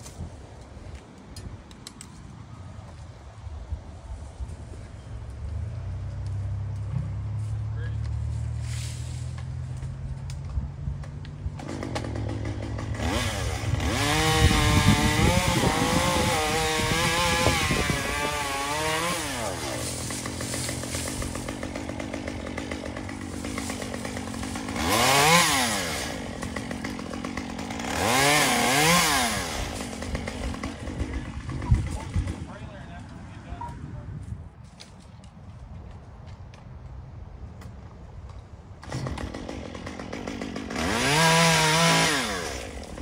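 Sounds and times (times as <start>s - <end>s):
chainsaw engine revving: 11.5s - 32.5s, 38.8s - 43.0s.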